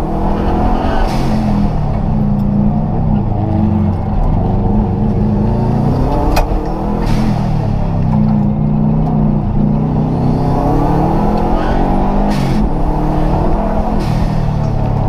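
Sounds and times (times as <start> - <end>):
rally car engine pulling hard: 0.0 - 15.0.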